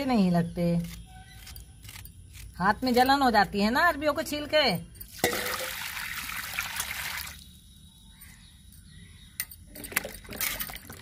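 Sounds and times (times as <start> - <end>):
water splashing and dripping: 5.1 - 7.5.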